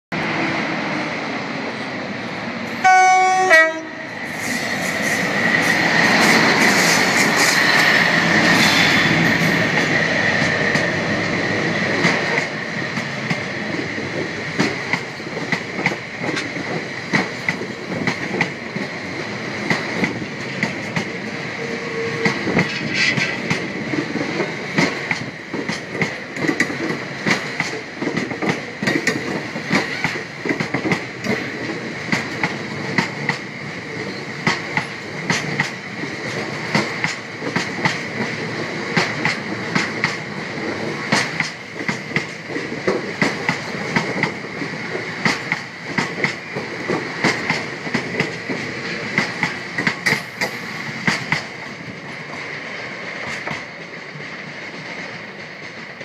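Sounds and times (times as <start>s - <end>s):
locomotive two-tone horn: 2.8s - 4.1s, 21.6s - 22.3s.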